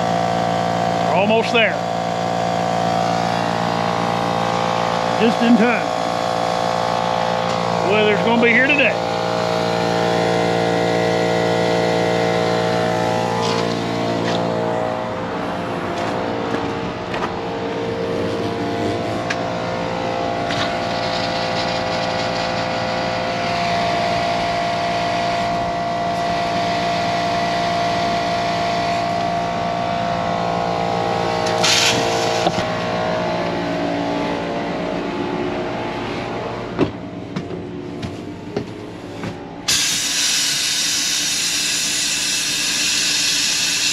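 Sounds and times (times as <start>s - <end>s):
air compressor running: 0.0s - 43.9s
hiss of air: 39.7s - 43.9s.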